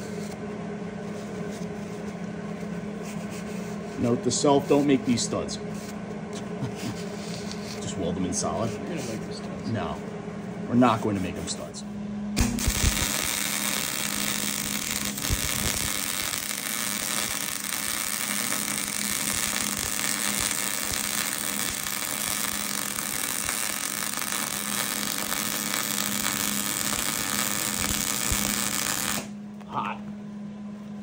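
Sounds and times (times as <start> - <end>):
electric arc welding hiss: 12.4 - 29.4.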